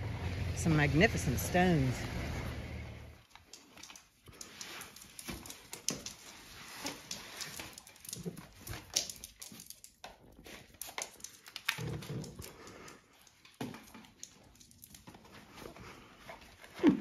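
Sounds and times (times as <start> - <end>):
dog claws clicking on hard floor: 3.2 - 16.4.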